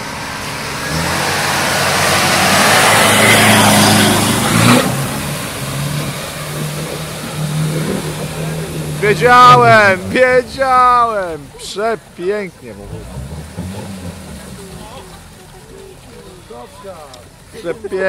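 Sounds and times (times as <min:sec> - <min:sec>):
car engine revving: 0:00.0 - 0:18.0
water and mud splashing: 0:00.0 - 0:18.0.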